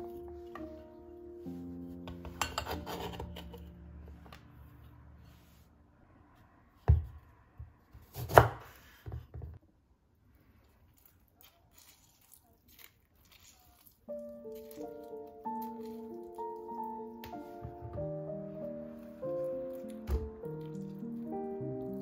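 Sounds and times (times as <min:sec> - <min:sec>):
knife scraping cutting board: 0:02.3 - 0:03.7.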